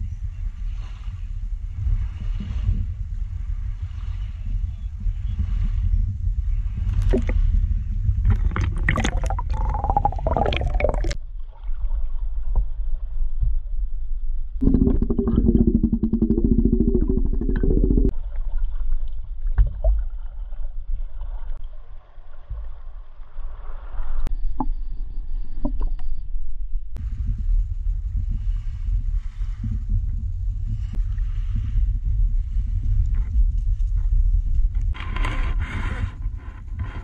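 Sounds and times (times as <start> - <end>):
heavy low rumble: 0.0 - 18.4, 26.7 - 37.0
water sloshing and gurgling: 5.2 - 13.6, 14.6 - 24.7
underwater bubbling buzz: 7.0 - 7.4, 8.2 - 11.2, 14.6 - 18.2.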